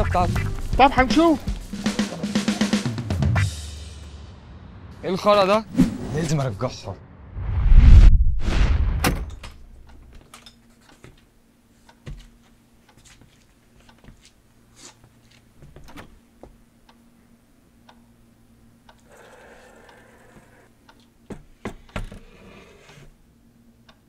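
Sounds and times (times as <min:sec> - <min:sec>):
whoosh ending in low boom: 0:07.0 - 0:09.4
faint steady hum: 0:09.2 - 0:24.0.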